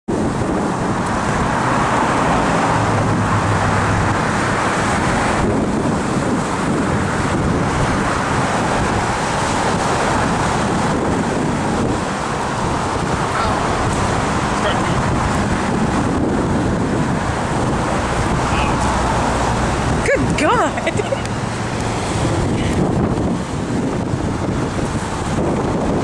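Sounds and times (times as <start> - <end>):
waves washing against shore: 0.1 - 26.0
wind buffeting microphone: 0.1 - 26.0.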